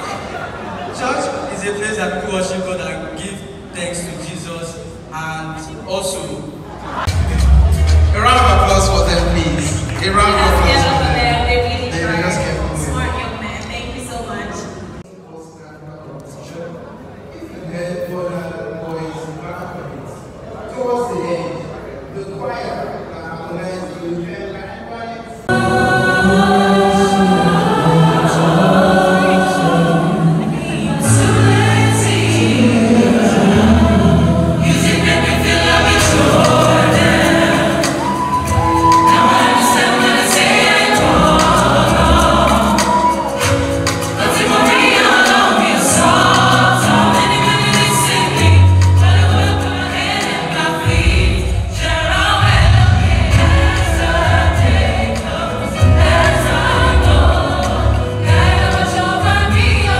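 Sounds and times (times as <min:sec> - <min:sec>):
drums: 0:07.0 - 0:10.0, 0:33.6 - 0:59.9
bass notes: 0:07.1 - 0:13.3
vocal group singing in harmony: 0:25.4 - 0:59.9.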